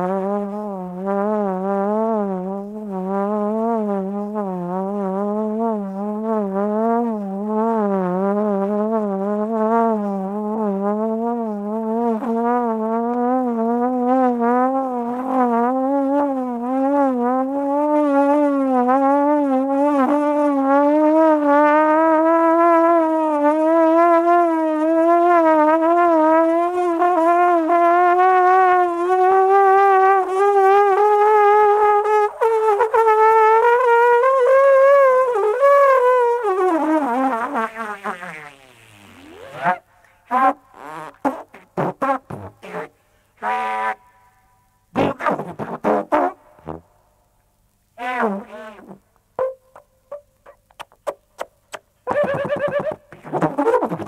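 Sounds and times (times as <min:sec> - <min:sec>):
free jazz trombone: 0:00.0 - 0:47.0, 0:48.0 - 0:54.0.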